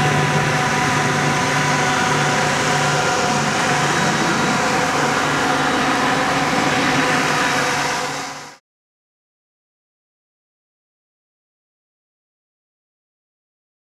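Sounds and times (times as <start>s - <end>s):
steady mechanical drone: 0.0s - 8.6s.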